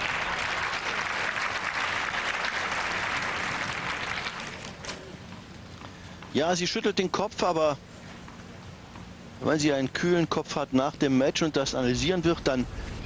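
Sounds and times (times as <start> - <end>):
crowd applauding: 0.0 - 4.8.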